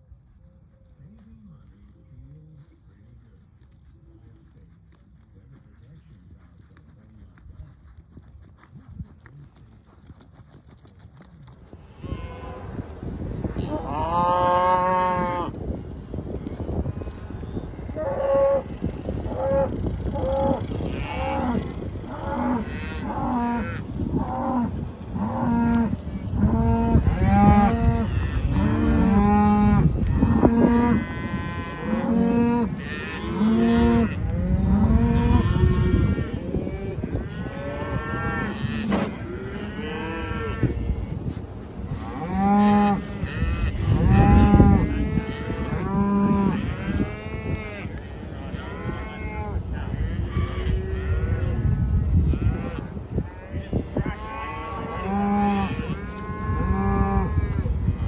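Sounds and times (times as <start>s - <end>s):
cattle mooing: 13.5s - 15.6s, 17.8s - 40.7s, 41.9s - 51.6s, 53.7s - 57.6s.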